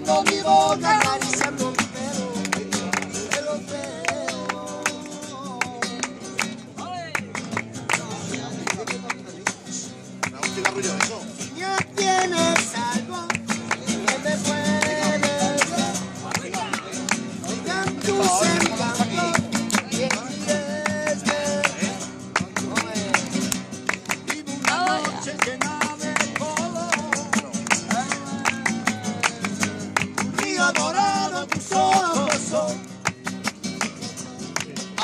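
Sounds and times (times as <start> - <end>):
man singing: 0.0 - 6.2, 10.4 - 23.2, 24.2 - 32.9
hands clapping in time: 0.0 - 35.0
strummed guitars: 0.0 - 35.0.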